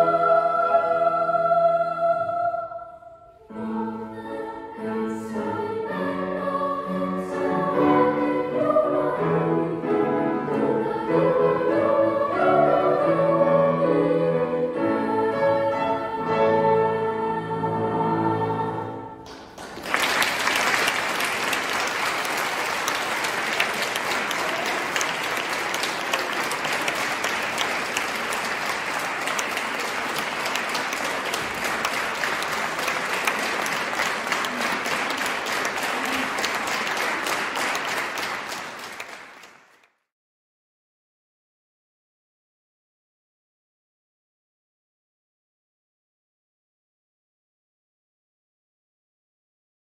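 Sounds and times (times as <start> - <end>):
boys' choir singing a chord: 0.0 - 19.2
audience applauding: 19.2 - 39.9.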